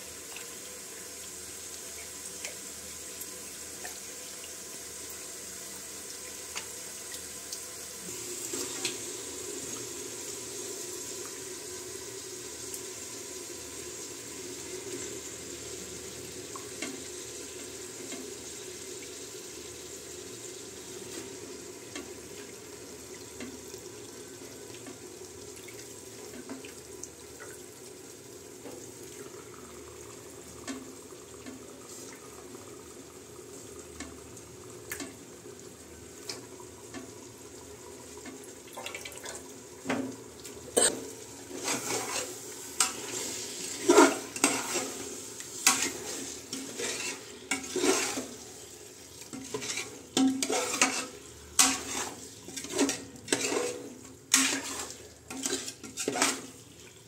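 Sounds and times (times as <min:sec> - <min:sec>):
chicken sizzling in a pan: 0:00.0 - 0:38.7, 0:39.4 - 0:57.0
metal spoon scraping a pot: 0:40.8 - 0:45.0, 0:45.6 - 0:48.4, 0:49.3 - 0:56.5.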